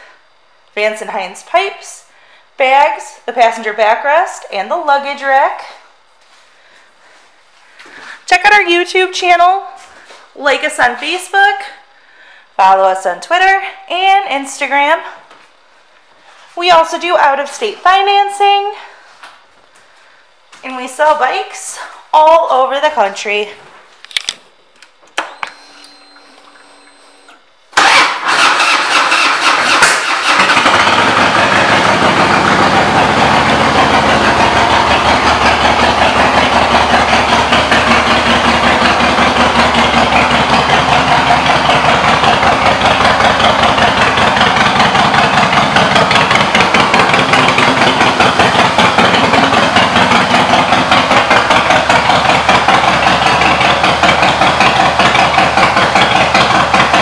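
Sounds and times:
motorcycle engine cranking: 27.8 - 57.0
motorcycle engine idling: 27.8 - 57.0.

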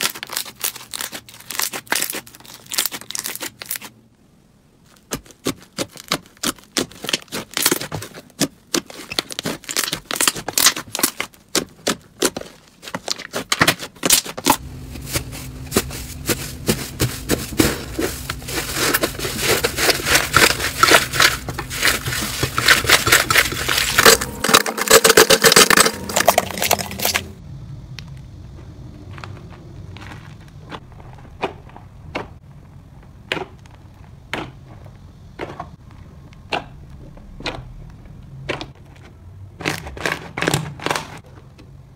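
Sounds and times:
slime squishing and popping: 0.0 - 3.9, 5.1 - 12.4.

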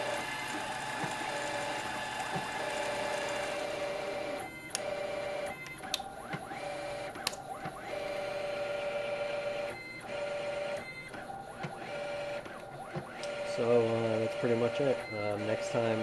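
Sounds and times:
stepper motors whining: 0.0 - 15.9
sharp clicks: 7.2 - 7.4.

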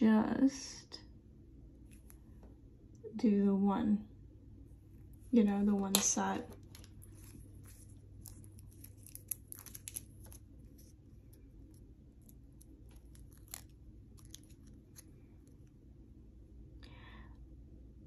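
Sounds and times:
nail strip peeling crackles: 5.8 - 15.8.

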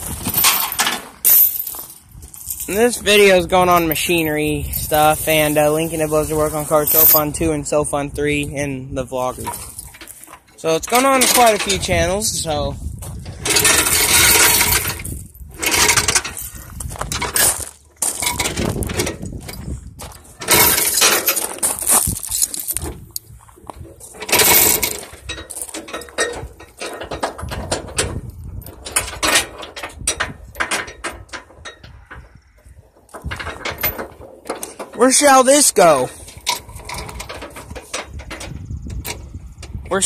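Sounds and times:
steel chains clinking and rattling: 0.0 - 7.6, 9.2 - 40.0
footsteps on gravel: 12.7 - 13.3, 16.3 - 24.3, 24.9 - 26.1.

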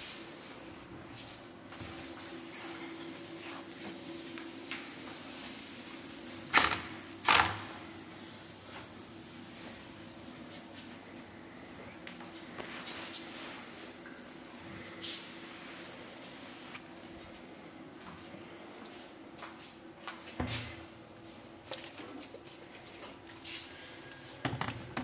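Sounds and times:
cloth wiping countertops: 0.0 - 19.1
faint hum: 0.0 - 25.0.

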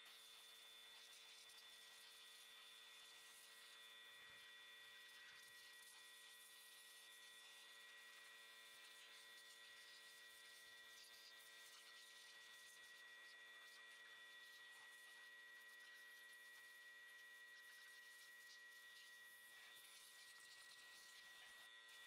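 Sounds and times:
thin high whine: 0.0 - 22.0.

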